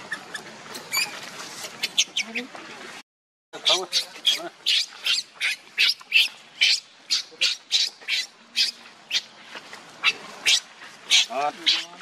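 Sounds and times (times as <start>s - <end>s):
baby monkey screaming: 3.6s - 9.3s, 10.0s - 12.0s.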